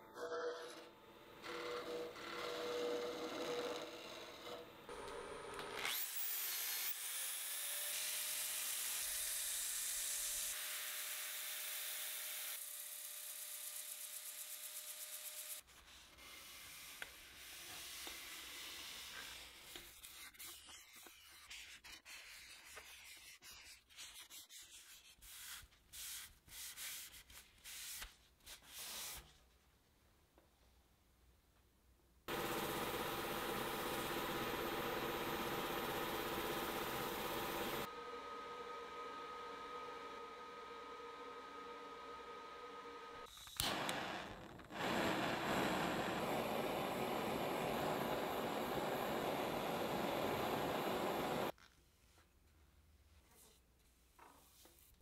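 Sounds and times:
gouge cutting spinning wood: 32.3 - 37.9
sanding disc whining and hissing: 32.3 - 37.9, 44.8 - 51.5.

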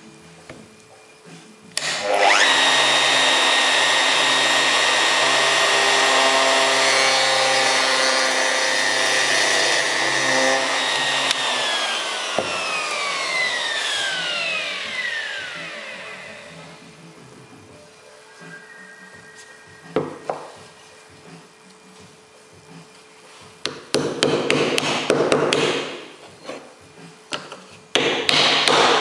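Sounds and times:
electric router whining: 1.8 - 17.1.

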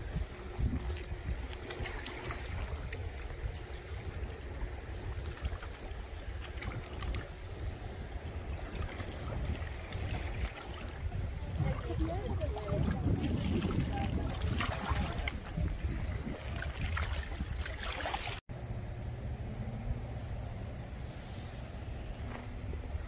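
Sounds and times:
wind buffeting microphone: 0.0 - 18.4.

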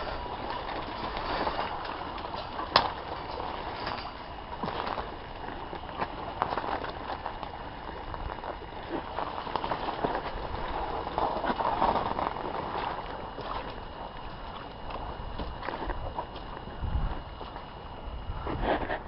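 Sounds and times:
small crackles: 0.0 - 19.0
wind on microphone: 9.8 - 19.0
microphone handling noise: 15.3 - 19.0.

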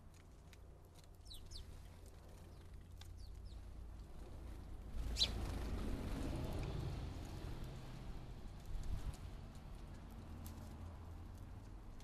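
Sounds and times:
sparrows chirping: 1.1 - 5.9.

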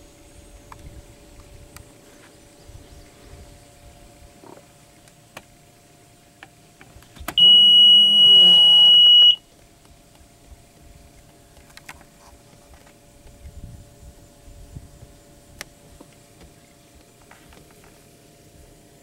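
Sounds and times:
high-pitched warning beep: 7.4 - 9.4.

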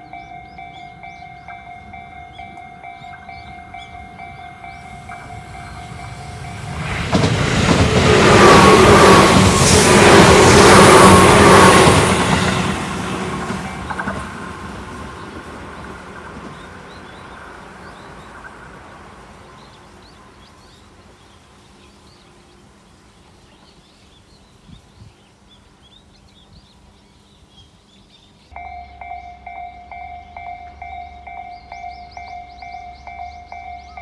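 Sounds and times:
small birds chirping: 0.0 - 6.4, 19.4 - 34.0
electric train rumble: 0.0 - 24.0, 28.5 - 34.0
ringing tone: 28.5 - 34.0.

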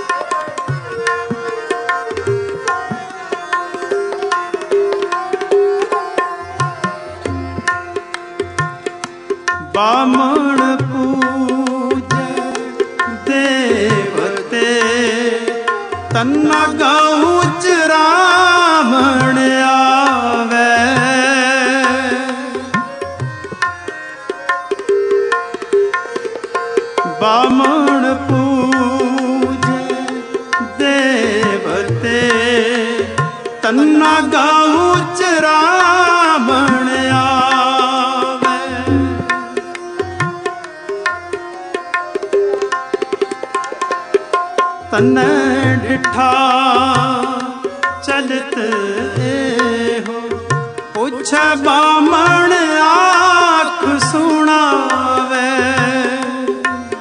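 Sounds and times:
harmonium chords: 0.0 - 57.0
tabla beat: 0.0 - 57.0
person singing: 9.6 - 23.0, 26.9 - 40.4, 44.8 - 57.0.

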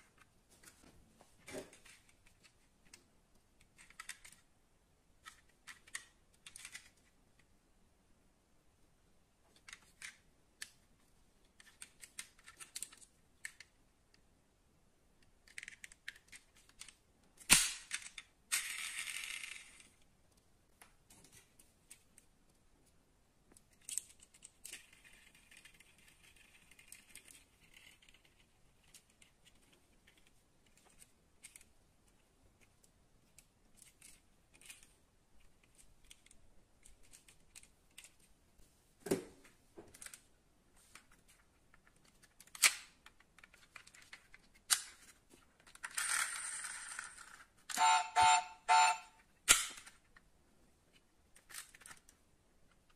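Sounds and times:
clicks and taps of toy models: 1.8 - 4.5, 5.2 - 7.5, 11.5 - 14.2, 15.2 - 22.3, 40.9 - 50.3.

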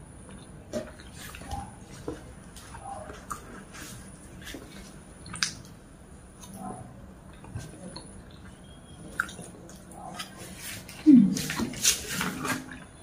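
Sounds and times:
wet chewing and lip-smacking: 0.2 - 12.9.

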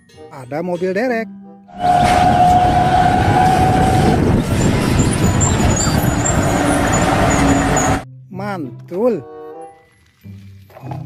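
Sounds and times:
truck engine running rough: 1.8 - 8.0.

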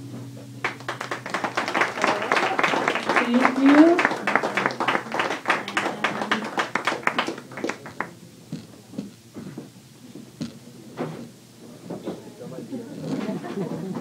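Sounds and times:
audience clapping: 0.6 - 9.1.

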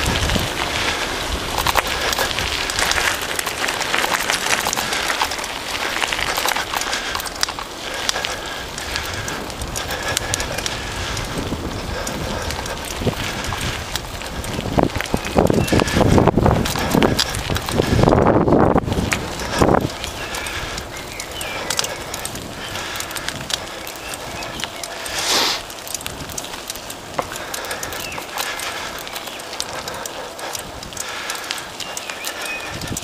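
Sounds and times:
bicycle tyres crunching gravel: 0.0 - 33.0.

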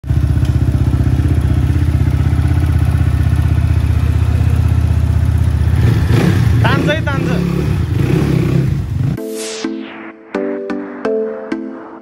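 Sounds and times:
dirt bike engine idling: 0.0 - 9.2.

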